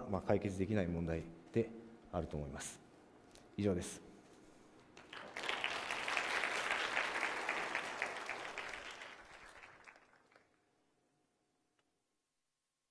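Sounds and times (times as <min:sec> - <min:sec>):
audience applauding: 0:05.0 - 0:10.6.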